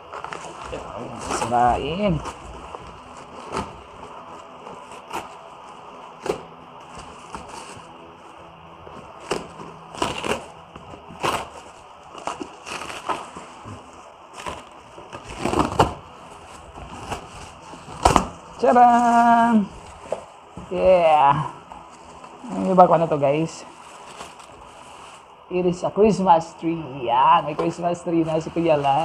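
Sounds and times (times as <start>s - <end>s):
cardboard box tearing: 0.0s - 7.9s, 9.1s - 21.2s.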